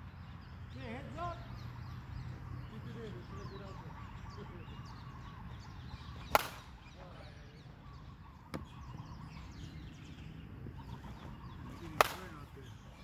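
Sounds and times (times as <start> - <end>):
birds chirping: 0.0 - 13.0
metal bat hitting ball: 6.3 - 6.6, 12.0 - 12.3.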